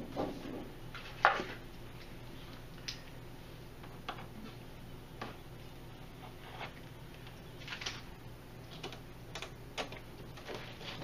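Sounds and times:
steady low hum: 0.0 - 11.0
plastic sheets rustling and crinkling: 10.3 - 11.0.

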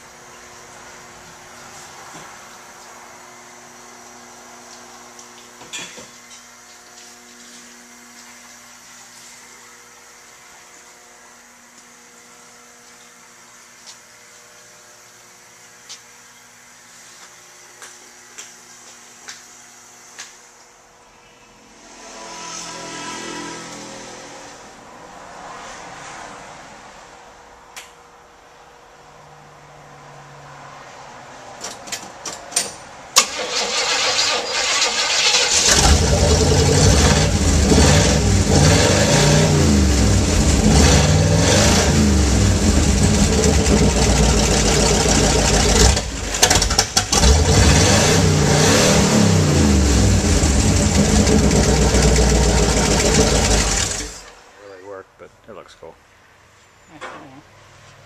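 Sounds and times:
car engine revving: 21.7 - 26.0, 34.6 - 54.3
engine starter clicks: 33.2 - 36.4
engine cranking: 33.2 - 38.0, 50.3 - 54.2.

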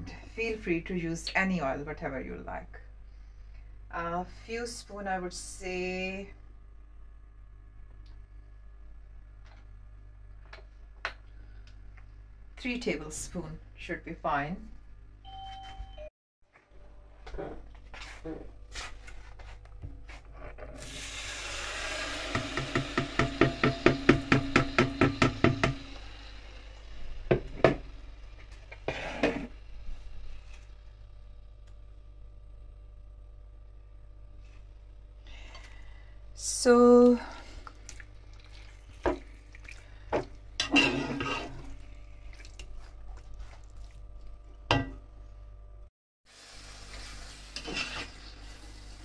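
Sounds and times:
chicken sizzling in oil: 20.8 - 29.5, 46.3 - 49.0
spatula knocking against a pan: 22.4 - 25.8
spatula scraping and stirring: 28.5 - 29.6, 37.9 - 44.0, 46.9 - 48.4
bowl being scraped: 28.7 - 29.6, 40.6 - 41.8, 47.5 - 48.4.

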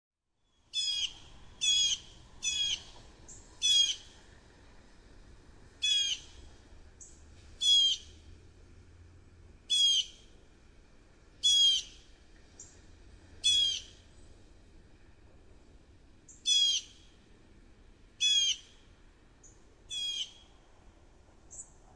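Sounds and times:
robin calling: 0.7 - 4.1, 5.8 - 6.4, 7.0 - 8.2, 9.7 - 10.2, 11.4 - 12.8, 13.4 - 14.0, 16.3 - 17.1, 18.2 - 18.8, 19.4 - 20.5, 21.5 - 21.7.

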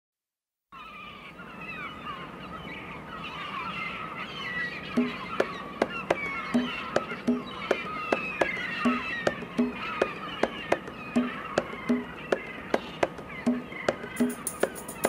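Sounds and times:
birds chirping and calling: 0.8 - 15.0
sharp percussive knocks: 5.0 - 15.0.

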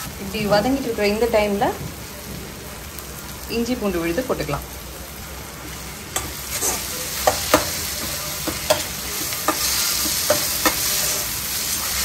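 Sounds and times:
frying hiss: 0.0 - 12.0
spatula clinking and scraping pan: 6.1 - 11.3.

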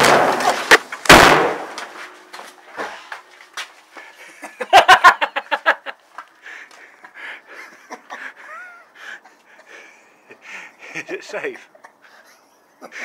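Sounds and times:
faint firework cracks and pops: 0.0 - 2.3
firework bangs: 0.0 - 2.3.

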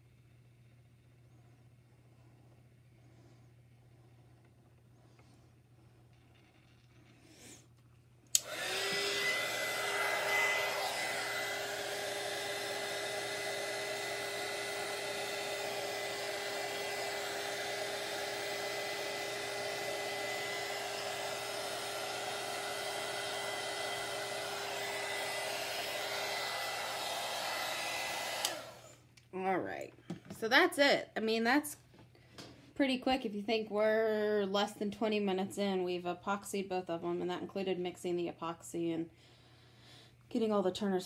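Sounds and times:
heat gun fan whine: 8.2 - 29.5
heat gun switch click: 8.3 - 9.1, 28.4 - 28.6.

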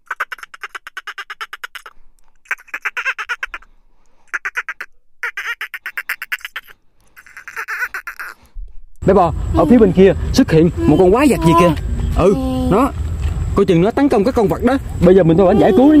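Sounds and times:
monster squawking chatter: 4.3 - 8.4, 10.8 - 11.8, 15.3 - 16.0.

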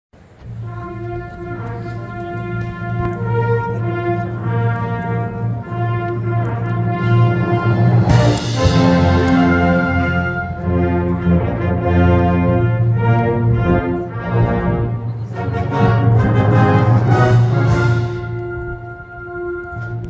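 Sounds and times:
wind band playing chords: 0.2 - 20.0.

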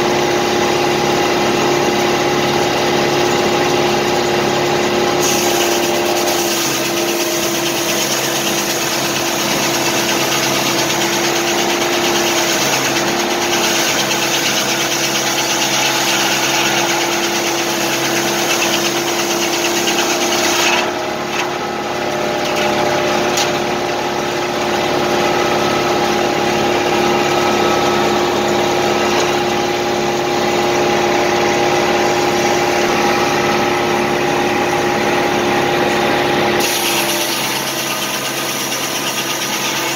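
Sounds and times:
saw blade cutting log: 5.0 - 30.6, 36.6 - 39.9
tractor engine running: 20.9 - 36.6
circular saw blade spinning: 36.6 - 39.9.

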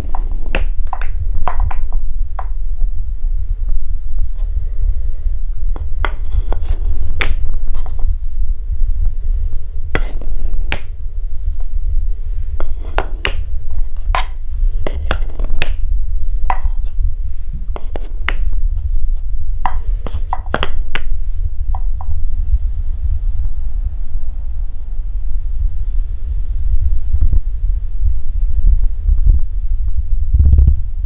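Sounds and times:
low rumble of rolling balls: 0.0 - 31.0
balls clacking on wooden track: 0.1 - 2.5, 19.6 - 21.1.

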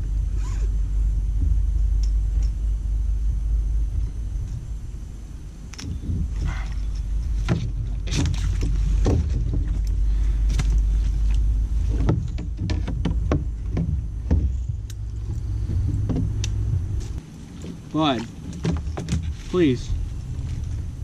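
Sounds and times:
steady low rumble: 0.0 - 21.0
knocks and clicks of handling: 5.8 - 19.4.

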